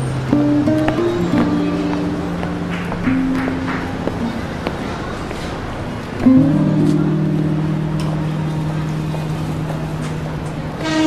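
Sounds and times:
low sustained music chord: 6.3s - 11.0s.

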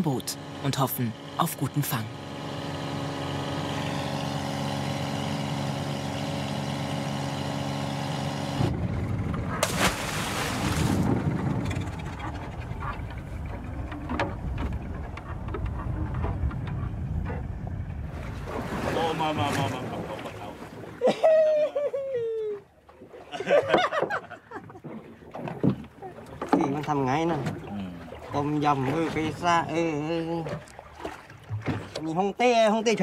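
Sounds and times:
boat engine running: 0.0s - 21.3s, 22.6s - 33.0s
wind noise: 8.6s - 19.0s
water splashing: 9.5s - 16.0s, 18.0s - 21.1s, 24.6s - 32.4s.

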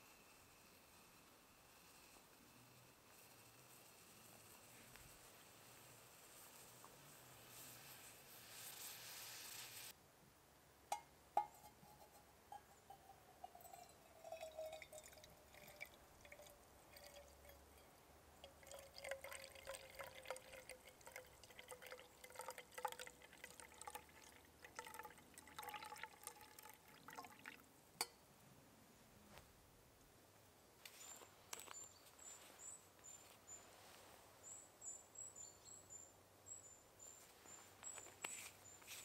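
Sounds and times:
coffee trickling into mug: 12.0s - 27.6s.

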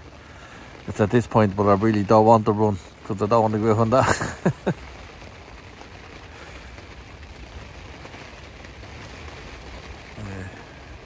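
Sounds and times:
heavy rain on a tent: 0.0s - 11.0s
man laughing: 3.9s - 4.8s.

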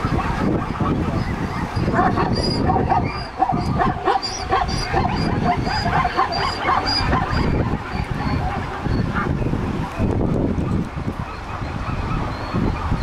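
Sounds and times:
zebras barking yelps: 0.0s - 9.4s
rush of wind and water: 0.0s - 13.0s.

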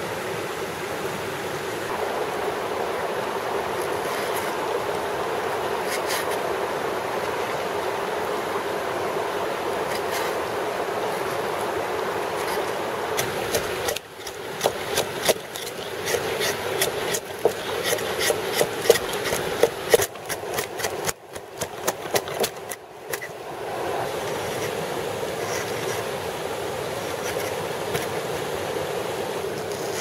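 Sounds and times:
stream rushing: 0.0s - 30.0s
knife scraping bark off log: 5.8s - 6.4s, 9.8s - 10.4s, 12.2s - 23.3s, 27.0s - 28.2s.

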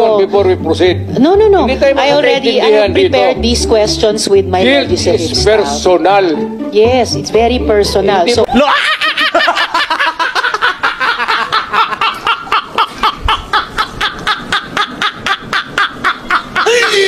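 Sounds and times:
men laughing hard: 8.5s - 17.0s.

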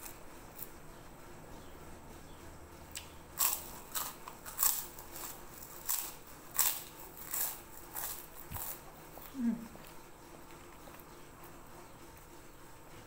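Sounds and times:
cracker crunching being chewed: 2.9s - 12.3s.

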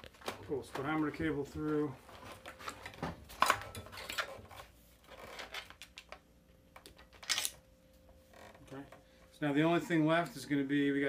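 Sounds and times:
cables rustling and scraping: 0.0s - 6.2s.

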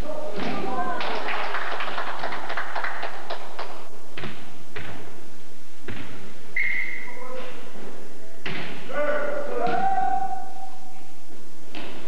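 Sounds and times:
hand-clapping: 0.4s - 3.9s.

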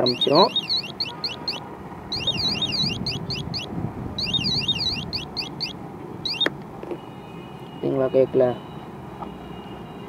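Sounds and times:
warbling electronic siren: 0.0s - 6.5s.

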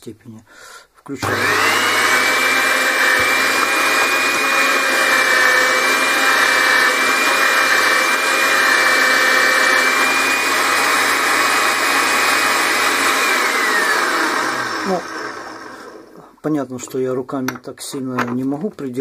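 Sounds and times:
meat grinder motor whining: 1.2s - 16.2s.

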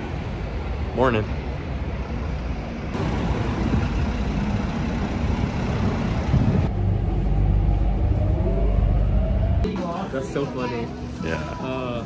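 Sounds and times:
city road traffic: 0.0s - 12.0s
low rumble inside train car: 2.6s - 12.0s.

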